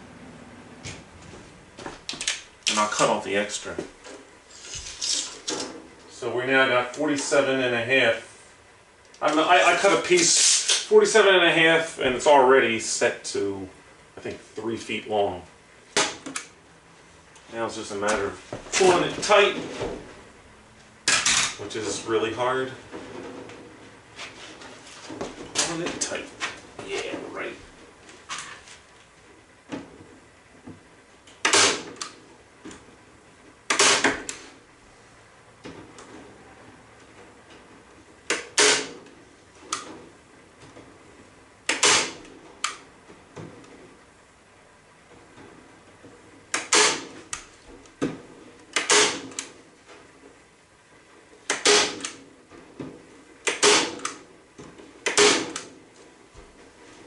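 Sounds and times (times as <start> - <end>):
staple gun firing: 41.7 - 42.2, 55.1 - 55.7.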